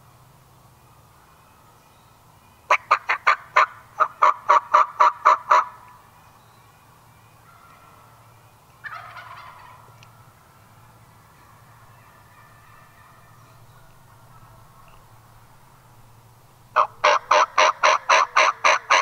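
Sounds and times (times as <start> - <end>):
turkey yelping: 2.7 - 5.8, 8.8 - 9.9, 11.4 - 15.0, 16.8 - 19.0
faint turkey gobble: 2.7 - 6.0, 7.4 - 8.2, 8.8 - 15.8, 16.8 - 19.0.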